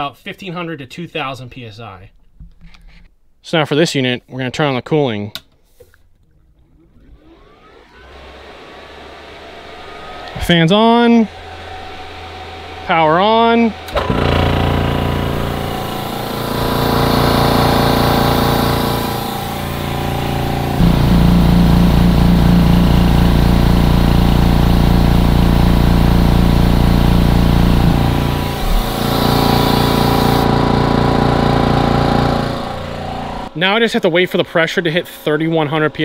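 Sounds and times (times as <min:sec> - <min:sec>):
air compressor running: 0:07.0 - 0:33.5.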